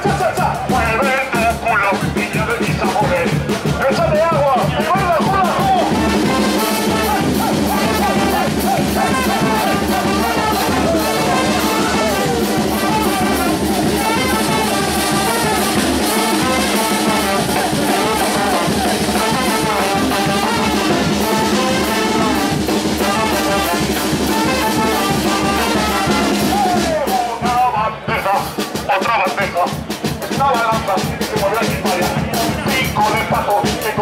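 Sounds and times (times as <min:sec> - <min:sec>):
brass band playing: 0:00.0 - 0:34.0
drums and cymbal beat: 0:00.0 - 0:34.0.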